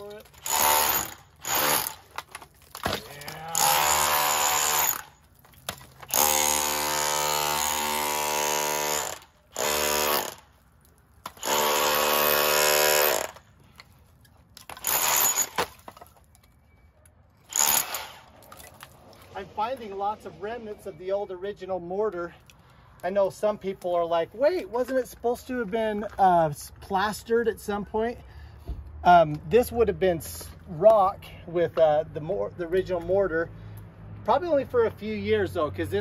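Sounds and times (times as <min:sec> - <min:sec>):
power tool chipping plaster: 0:00.0 - 0:05.2, 0:06.0 - 0:10.4, 0:11.3 - 0:13.4, 0:14.7 - 0:15.7, 0:17.5 - 0:18.2.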